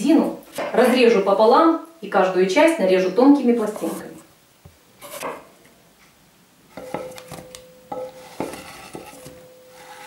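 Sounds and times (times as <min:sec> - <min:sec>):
glass bowl ringing: 0:06.8 - 0:08.4.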